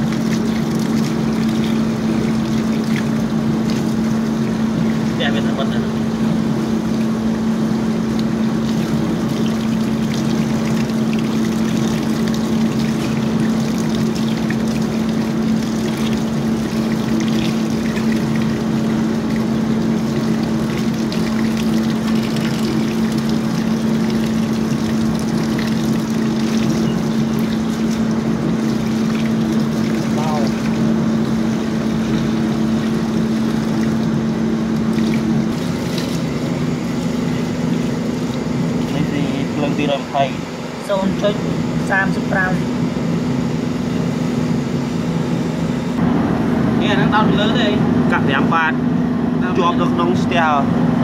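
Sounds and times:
water splashing into gutter: 0:00.0 - 0:36.5
motor humming: 0:00.0 - 0:50.8.

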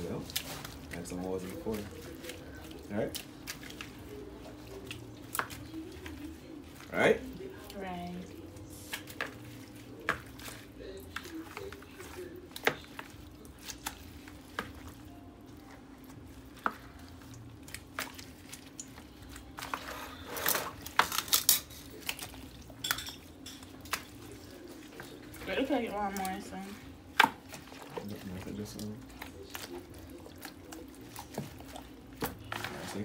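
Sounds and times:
dishes and utensils clinking: 0:19.6 - 0:24.3.

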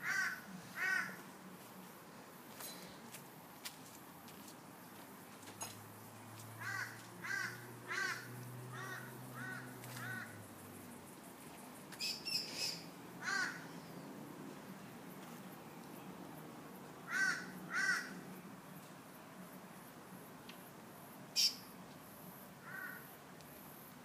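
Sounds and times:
crow cawing: 0:00.0 - 0:01.2, 0:06.6 - 0:10.4, 0:13.2 - 0:13.7, 0:17.1 - 0:18.2, 0:22.6 - 0:23.1.

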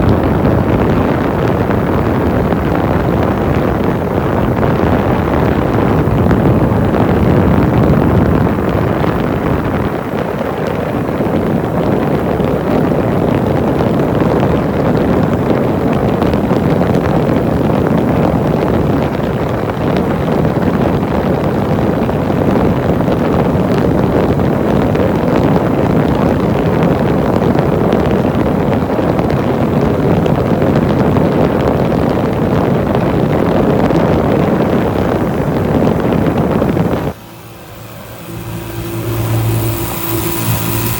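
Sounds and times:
wind on microphone: 0:00.0 - 0:40.9
vehicle driving in tunnel: 0:32.2 - 0:40.9.

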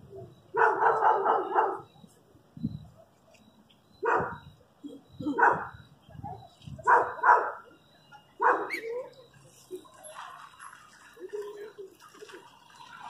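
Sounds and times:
dog barking: 0:00.6 - 0:01.8, 0:04.0 - 0:04.4, 0:05.4 - 0:05.7, 0:06.8 - 0:07.7, 0:08.4 - 0:08.9.

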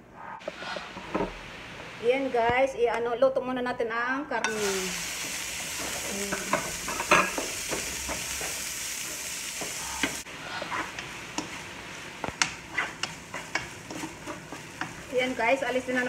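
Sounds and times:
meat sizzling in oil: 0:04.5 - 0:16.0
spatula scraping and tapping pan: 0:04.5 - 0:16.0.

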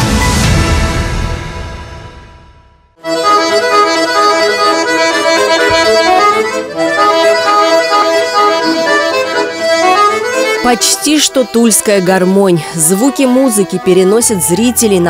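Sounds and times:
button accordion playing: 0:03.0 - 0:15.0.

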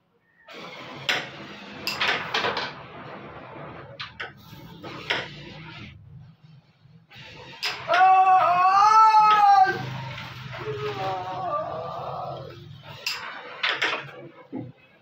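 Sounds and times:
carrom striker clacking coins: 0:01.8 - 0:02.7, 0:13.0 - 0:14.2.

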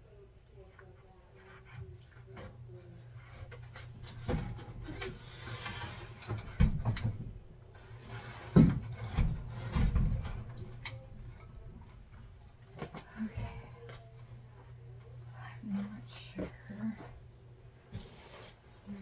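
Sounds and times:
scraping rub on glass tank: 0:07.9 - 0:09.8.

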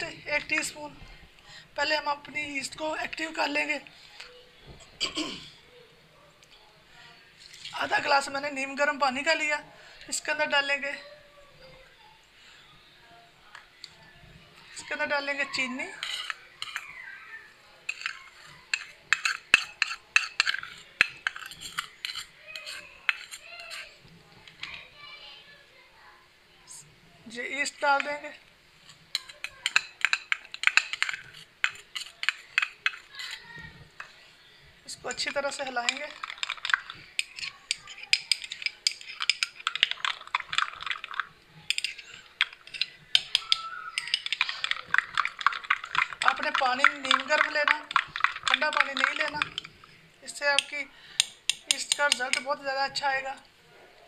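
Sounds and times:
metal spoon scraping bowl: 0:14.7 - 0:17.1, 0:17.9 - 0:24.0, 0:28.9 - 0:34.2, 0:35.0 - 0:53.4.

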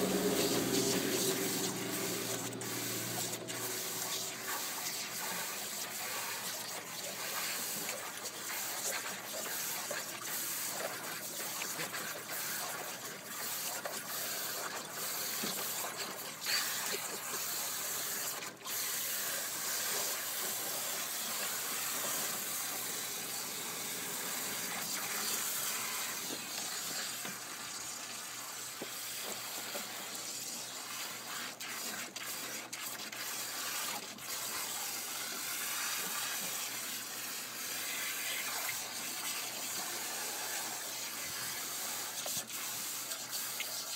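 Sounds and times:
hose water running into pool: 0:00.0 - 0:43.9.

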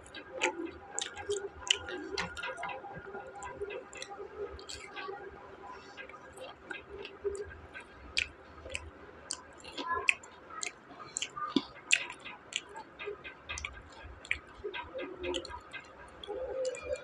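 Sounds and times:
mouth clicks: 0:00.0 - 0:17.0
person chewing crunchy food: 0:00.4 - 0:02.6, 0:08.2 - 0:12.7.

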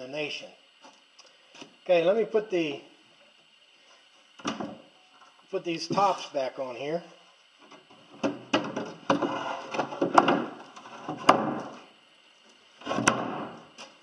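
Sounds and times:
wood rubbing and scraping: 0:05.9 - 0:06.4, 0:08.6 - 0:11.8.

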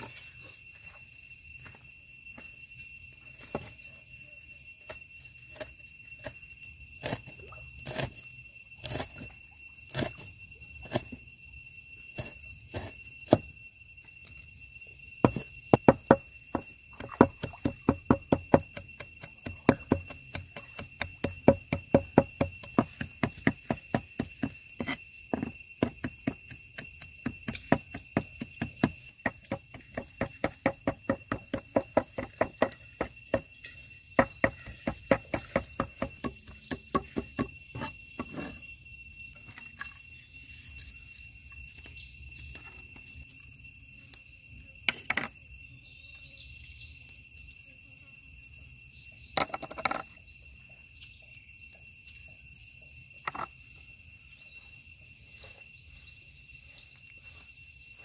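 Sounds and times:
crickets chirring: 0:00.0 - 0:58.0
cleaver chopping on wooden board: 0:15.2 - 0:33.5, 0:34.2 - 0:37.5.

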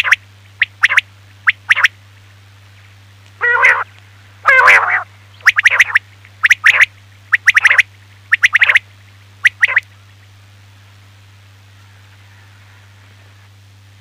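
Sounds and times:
quail calling: 0:00.0 - 0:01.9, 0:03.4 - 0:08.8, 0:09.4 - 0:09.8
steady low hum: 0:00.0 - 0:14.0.

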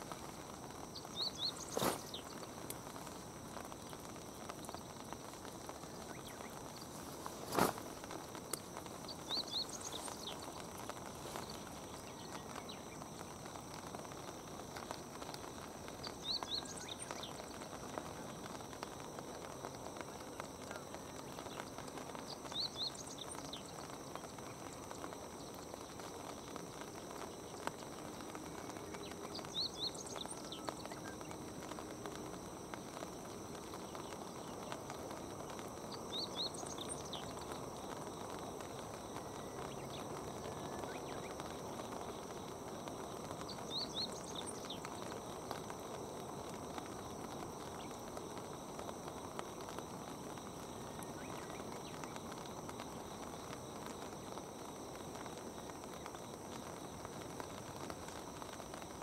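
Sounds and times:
small bird calling: 0:00.0 - 0:13.0
outdoor background hiss: 0:00.0 - 0:59.0.

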